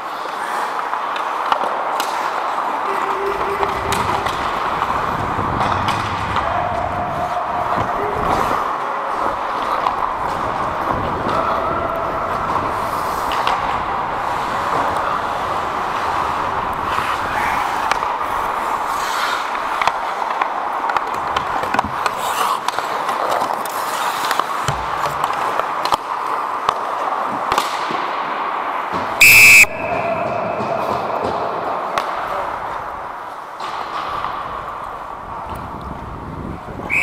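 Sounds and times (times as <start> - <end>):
skate blades scraping on ice: 0.0 - 28.1
clacks of hockey sticks and puck: 0.0 - 35.9
referee's whistle blast: 29.2 - 30.4.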